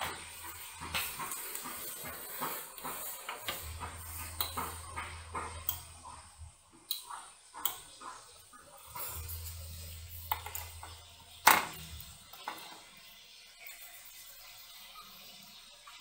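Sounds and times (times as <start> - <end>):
low hum: 8.9 - 12.3.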